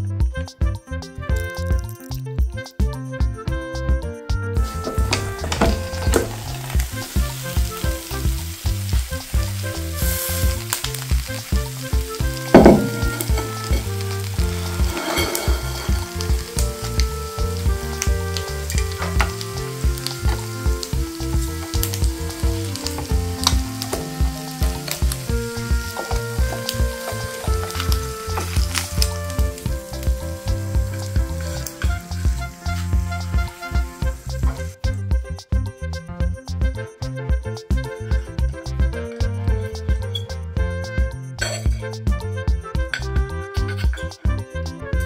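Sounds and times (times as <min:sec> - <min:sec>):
background music with steady beat: 0:00.0 - 0:45.0
egg sizzling in waffle maker: 0:04.7 - 0:34.6
loud thump: 0:04.9 - 0:06.5, 0:12.5 - 0:13.5.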